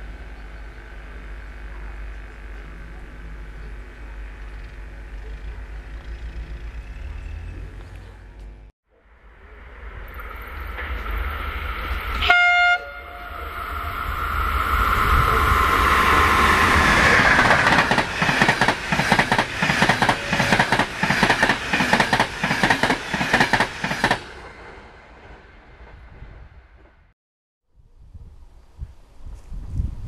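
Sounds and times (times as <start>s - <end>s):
passenger train passing: 9.0s - 27.1s
train horn blast: 12.2s - 14.0s
wheels clacking over rail joints: 16.2s - 25.4s.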